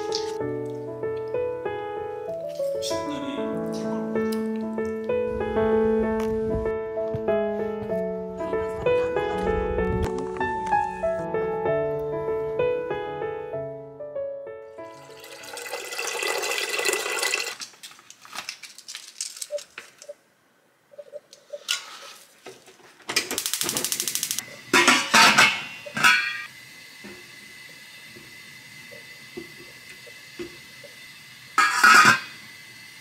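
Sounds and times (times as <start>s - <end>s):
water pouring into pot: 14.9s - 17.7s
metal pot and lid clattering: 24.7s - 26.5s, 31.6s - 32.4s.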